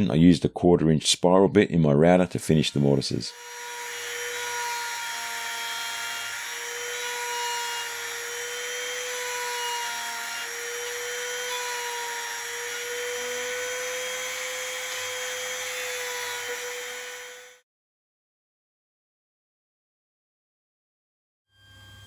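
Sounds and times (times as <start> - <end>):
hiss of router cutting wood: 2.6 - 17.6
router motor whine: 2.6 - 17.6.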